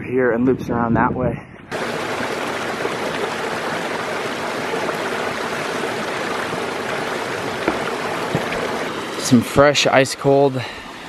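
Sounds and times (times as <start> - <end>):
stream splashing over boulder: 1.7 - 10.0.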